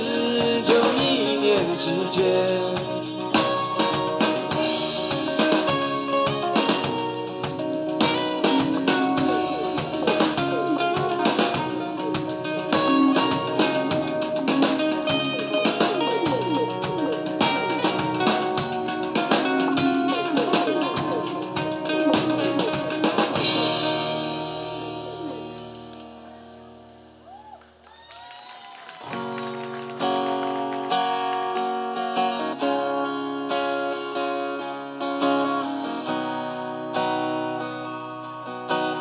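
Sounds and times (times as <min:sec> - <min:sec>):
acoustic guitars strumming: 0:00.0 - 0:27.1, 0:29.1 - 0:39.0
bending lead guitar notes: 0:00.0 - 0:27.2.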